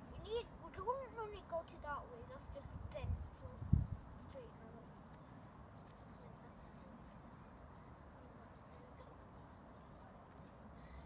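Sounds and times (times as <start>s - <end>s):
wind noise on microphone: 2.2s - 4.4s.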